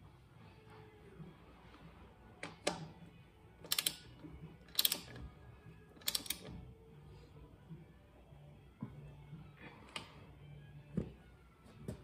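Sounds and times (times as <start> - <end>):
socket ratchet clicking: 3.6 - 4.1, 4.7 - 5.2, 6.0 - 6.5.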